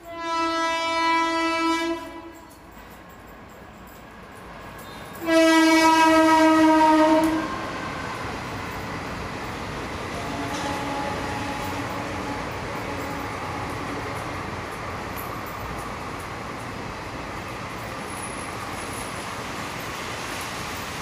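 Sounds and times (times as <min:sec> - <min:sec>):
loud horn blast: 0:00.0 - 0:02.5, 0:05.2 - 0:08.2, 0:10.1 - 0:14.0.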